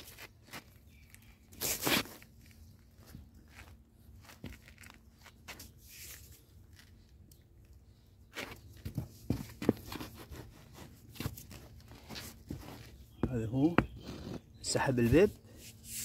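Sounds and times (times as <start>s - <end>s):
scuffing on stony ground: 0.0s - 5.8s, 8.3s - 14.3s
sharp knocks and scrapes: 8.4s - 14.8s.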